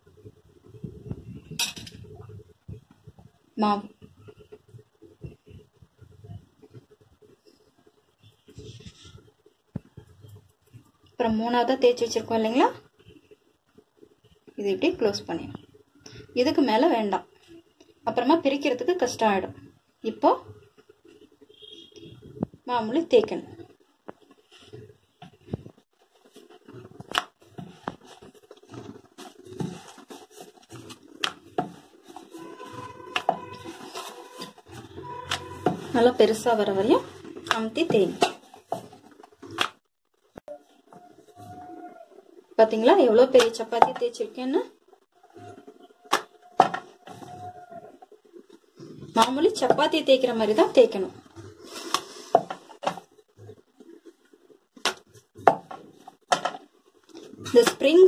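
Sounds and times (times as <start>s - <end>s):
rolling pin rolling dough: 16.4s - 58.0s.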